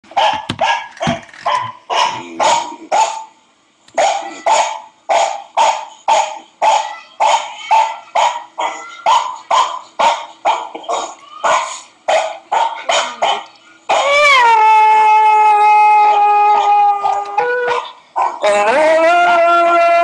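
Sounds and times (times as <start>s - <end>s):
dog barking: 0.1s - 3.3s, 4.0s - 14.2s, 17.7s - 18.5s.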